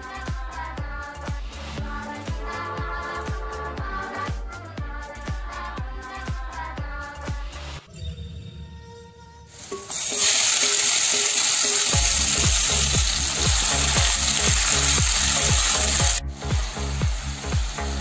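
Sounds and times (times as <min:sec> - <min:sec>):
beef sizzling in hot oil: 0:09.6 - 0:18.0.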